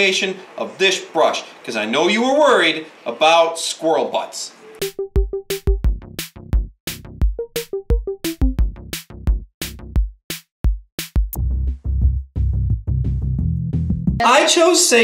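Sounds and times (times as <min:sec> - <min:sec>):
electronic music: 0:04.8 - 0:09.0.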